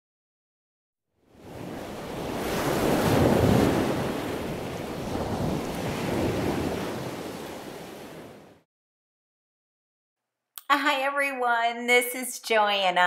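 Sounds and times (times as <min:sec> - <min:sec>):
ocean waves washing in: 0:01.2 - 0:08.7.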